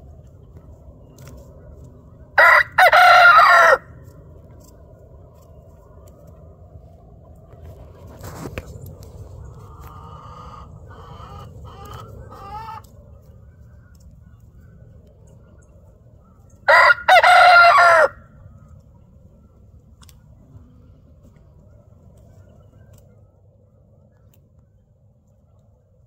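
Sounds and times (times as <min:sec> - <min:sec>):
rooster crowing: 0:02.4 - 0:04.0, 0:16.7 - 0:18.2.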